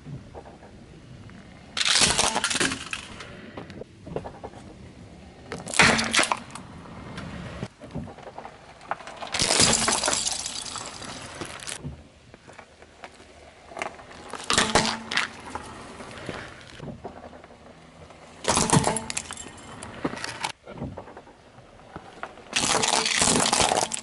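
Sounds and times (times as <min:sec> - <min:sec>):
tyre crushing plastic toys: 0:01.8 - 0:03.1, 0:08.2 - 0:11.8, 0:18.4 - 0:20.6, 0:22.5 - 0:24.0
sharp cracks: 0:01.8 - 0:04.6, 0:05.5 - 0:06.7, 0:22.5 - 0:24.0
crackling crunch: 0:21.8 - 0:24.0.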